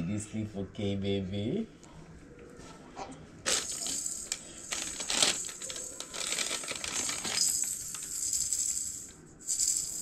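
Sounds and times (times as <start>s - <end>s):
plastic baby toy rattling: 3.5s - 8.7s.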